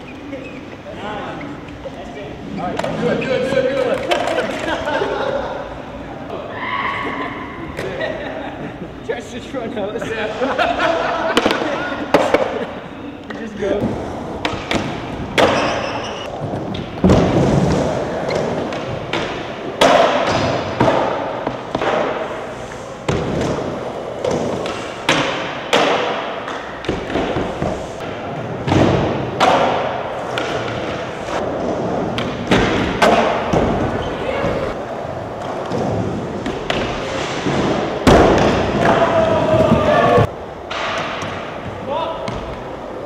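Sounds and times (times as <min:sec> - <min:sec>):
skateboard wheels rolling on concrete: 0:13.5 - 0:43.0.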